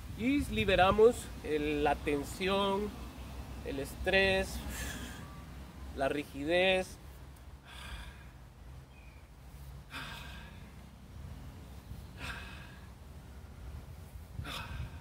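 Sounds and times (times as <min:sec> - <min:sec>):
man breathing out forcefully: 0:04.6 - 0:05.4, 0:07.6 - 0:08.5, 0:09.8 - 0:10.8, 0:12.1 - 0:13.0, 0:14.3 - 0:15.0.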